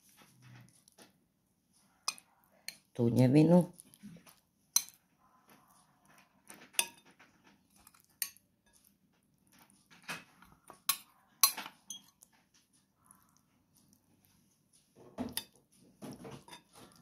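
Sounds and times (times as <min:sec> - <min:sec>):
metal spoon clinking on glass bowl: 0:02.1 - 0:02.9, 0:04.8 - 0:05.0, 0:06.8 - 0:07.1, 0:10.8 - 0:12.2
spoon scraping glass: 0:10.4 - 0:12.2.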